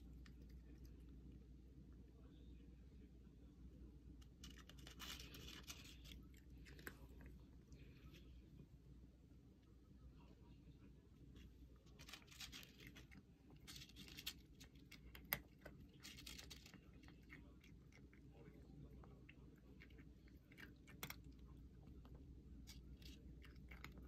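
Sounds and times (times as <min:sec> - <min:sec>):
cat crunching dry kibble: 0:00.0 - 0:01.5, 0:04.2 - 0:08.3, 0:11.6 - 0:24.0.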